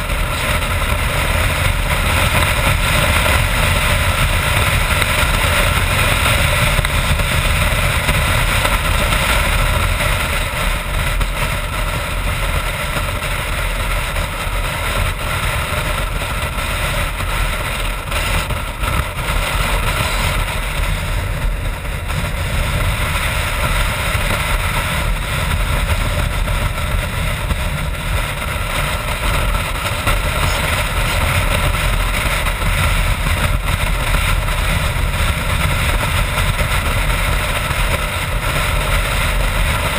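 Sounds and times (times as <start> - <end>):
motorcycle engine running: 0.0 - 39.9
wind rush on microphone: 0.0 - 39.9.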